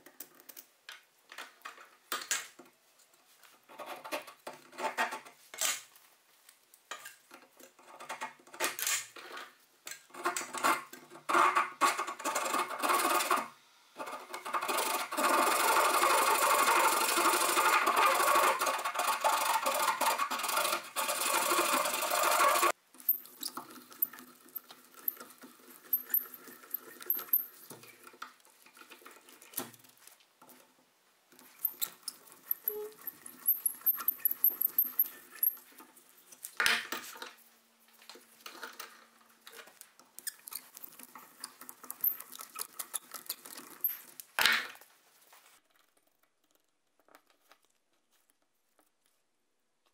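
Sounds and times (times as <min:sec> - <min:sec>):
hand saw cutting wood: 0:14.1 - 0:22.8.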